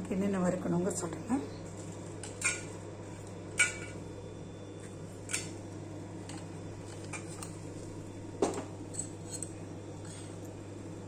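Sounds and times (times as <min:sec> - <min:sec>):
steady low hum: 0:00.0 - 0:11.0
kitchen utensils clinking: 0:02.2 - 0:02.8, 0:03.5 - 0:04.0.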